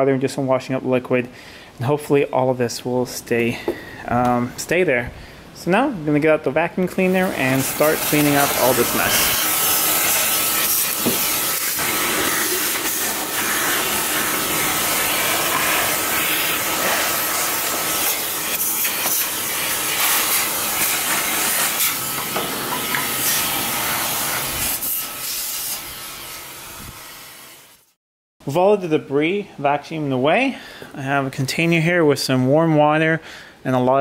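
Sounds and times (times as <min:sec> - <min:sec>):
vacuum cleaner running: 0:07.1 - 0:27.9.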